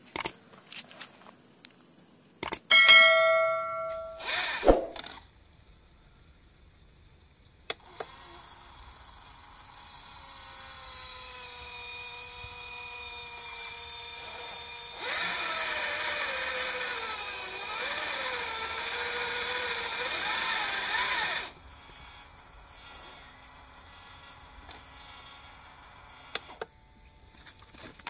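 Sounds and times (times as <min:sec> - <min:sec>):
sharp clicks: 0:00.1 - 0:00.4, 0:02.4 - 0:02.7.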